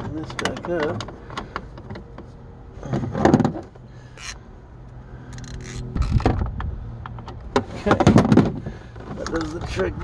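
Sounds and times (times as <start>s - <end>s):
clicks and scrapes of metal and plastic: 2.9s - 4.4s, 5.3s - 9.8s.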